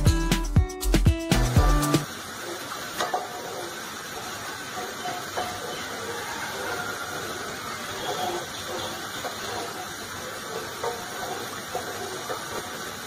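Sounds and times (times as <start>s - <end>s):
steady hiss: 0.0s - 13.0s
spatula stirring milk in a pot: 3.3s - 13.0s
spatula scraping metal pot: 4.8s - 13.0s.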